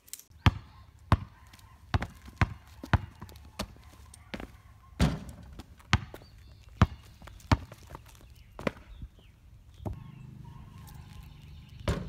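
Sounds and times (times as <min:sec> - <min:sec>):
basketball bouncing on concrete: 0:00.3 - 0:09.0, 0:09.8 - 0:10.0, 0:11.8 - 0:12.0.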